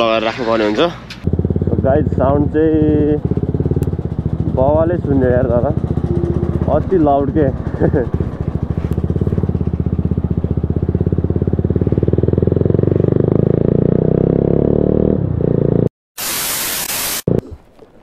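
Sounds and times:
motorcycle engine revving: 1.1 - 15.9
loud hiss: 16.2 - 17.3.

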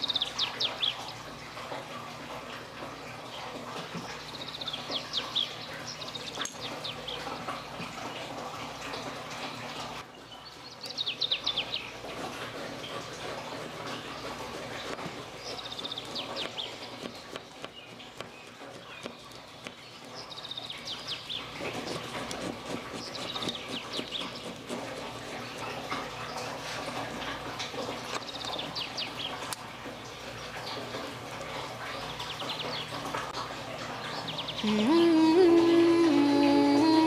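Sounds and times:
bird chirping: 0.0 - 1.2, 4.1 - 7.7, 10.1 - 12.0, 14.2 - 22.1, 22.9 - 24.6.

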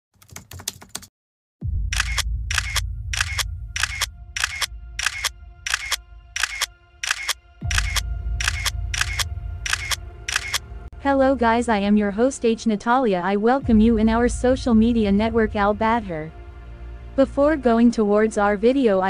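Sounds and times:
deep music drone: 1.6 - 19.0
camera shutter clicks: 1.9 - 10.6.

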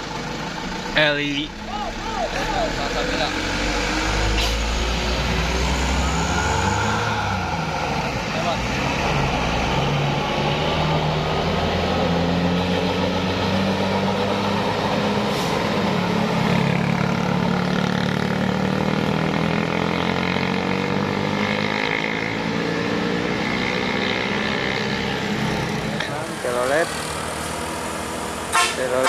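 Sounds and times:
coach diesel engine: 0.0 - 29.0
motorcycle passing: 16.0 - 28.6.

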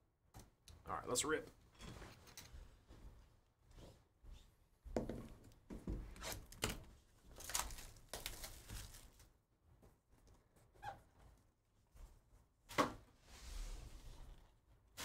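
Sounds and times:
plastic wrap tearing and crinkling: 7.3 - 9.3.

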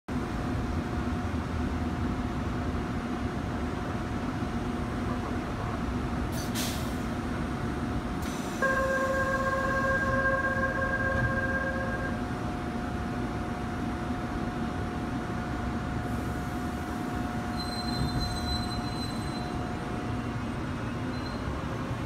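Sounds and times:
door-closing warning tone: 8.6 - 12.2, 17.5 - 19.6, 21.1 - 21.5
electric train equipment humming: 8.6 - 22.0.

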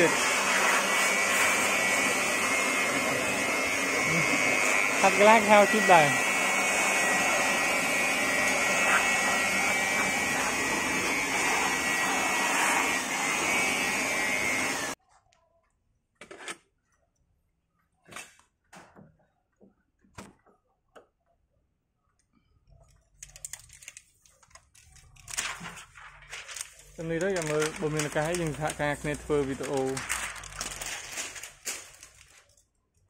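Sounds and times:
electric air blower whining: 0.0 - 15.0.

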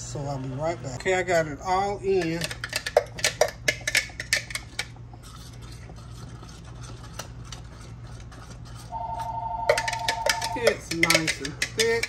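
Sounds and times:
steady low hum: 0.0 - 12.0
spoon scraping plastic jar: 2.2 - 12.0
two-note tone: 9.0 - 10.6.

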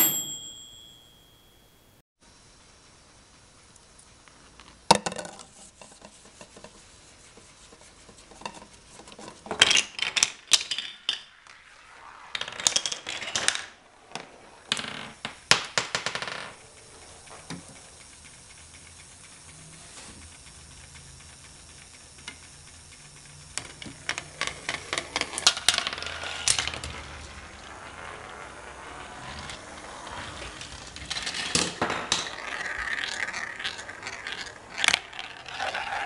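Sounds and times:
marbles rolling on plastic track: 8.2 - 18.0, 22.0 - 36.0
wooden blocks toppling: 30.4 - 36.0.

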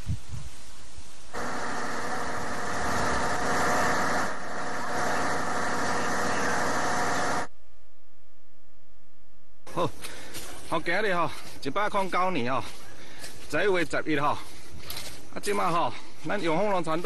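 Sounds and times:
motor running with held tones: 1.3 - 7.5.

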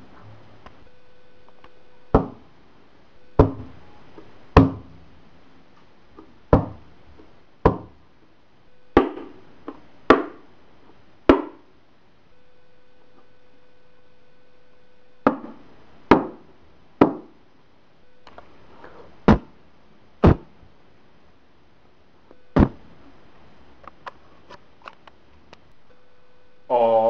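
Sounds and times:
sharp knocks: 2.1 - 2.4, 3.4 - 3.8, 4.6 - 5.0, 6.2 - 6.8, 7.6 - 8.0, 9.0 - 10.4, 11.3 - 11.7, 15.2 - 17.4, 19.3 - 19.6, 20.2 - 20.5, 22.6 - 22.8.

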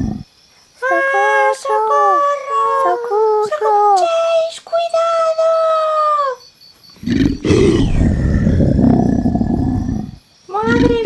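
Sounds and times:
high wailing cries: 7.0 - 11.0
loud rough dinosaur roar: 7.0 - 11.0.

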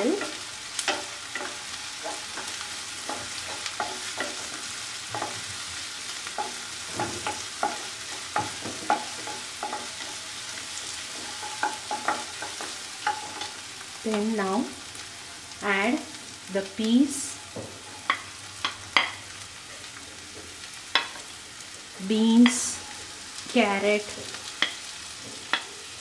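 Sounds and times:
food sizzling in oil: 0.0 - 26.0
spatula scraping a pan: 0.1 - 13.7.

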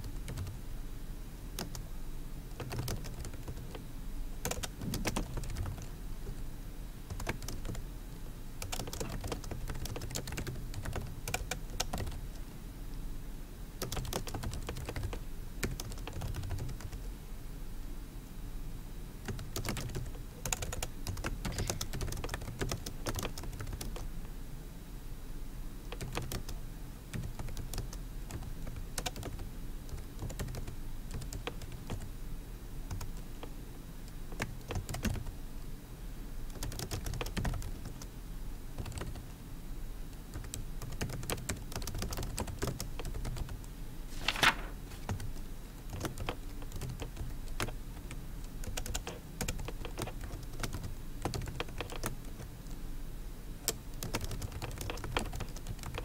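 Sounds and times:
keyboard typing clicks: 0.0 - 0.6, 1.6 - 1.8, 2.5 - 3.8, 4.4 - 6.4, 7.1 - 7.8, 8.6 - 12.2, 13.8 - 17.0, 19.3 - 24.0, 25.9 - 26.6, 27.2 - 32.1, 34.1 - 35.3, 36.5 - 38.1, 40.3 - 43.6, 44.2 - 52.5, 53.7 - 56.0.

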